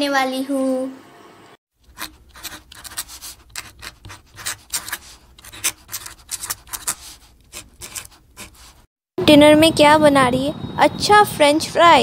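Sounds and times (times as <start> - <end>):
fingertip rubbing on paper: 1.8 - 8.9.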